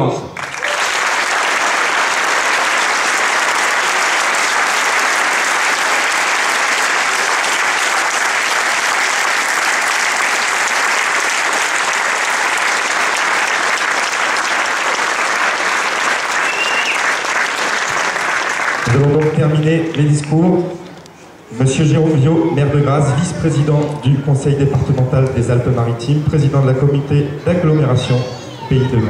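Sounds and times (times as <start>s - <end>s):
crowd applauding: 0.3s - 20.4s.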